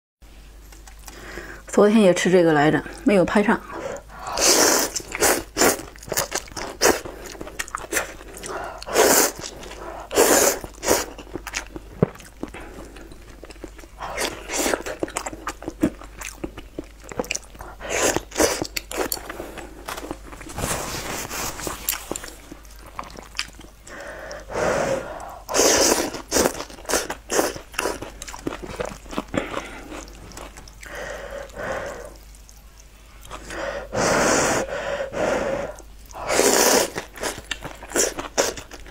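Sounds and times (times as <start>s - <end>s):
wet chewing: 0.7s - 1.3s, 3.7s - 24.4s, 25.1s - 33.6s, 35.7s - 38.9s
noodles being slurped: 4.2s - 13.0s, 25.5s - 31.0s, 36.1s - 38.9s.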